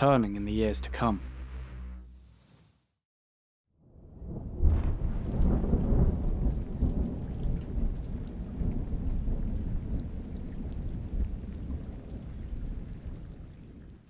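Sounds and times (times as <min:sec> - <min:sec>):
thunder rumbling: 0:03.9 - 0:13.4
sharp thunderclap: 0:04.1 - 0:12.2
steady rain: 0:05.0 - 0:14.0.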